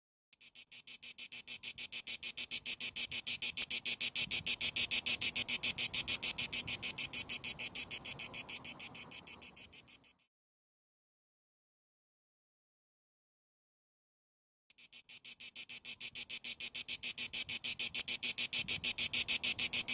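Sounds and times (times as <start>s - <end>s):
cicada buzzing: 0.4s - 10.3s, 14.7s - 19.9s.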